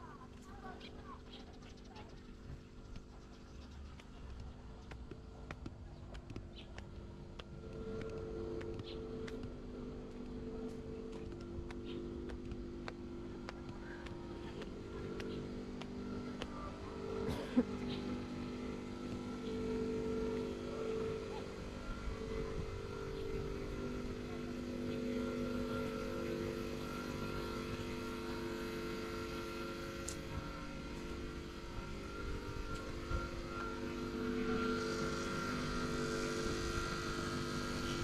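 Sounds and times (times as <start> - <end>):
engine humming: 0.0 - 38.0
footsteps on concrete: 2.3 - 21.0.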